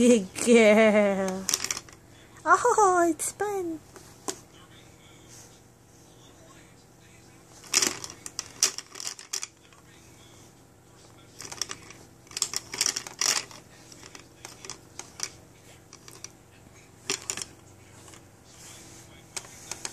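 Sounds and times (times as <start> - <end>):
plastic toy clicking and rattling: 1.2 - 2.0, 7.6 - 9.6, 11.4 - 16.3, 17.1 - 17.5.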